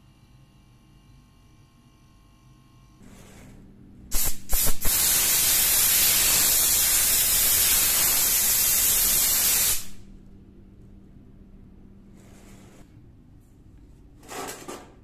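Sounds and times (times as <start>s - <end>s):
compressed air blasting from blow gun: 4.1s - 10.0s.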